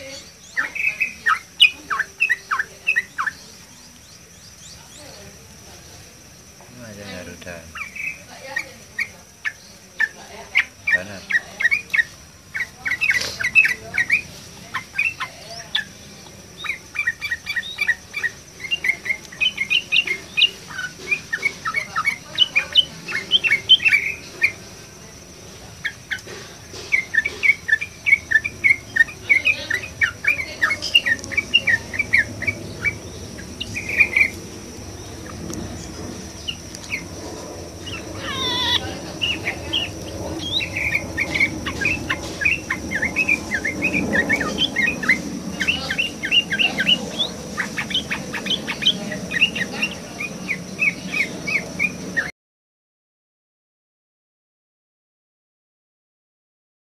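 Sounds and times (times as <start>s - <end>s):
bird chirping: 0.0s - 52.3s.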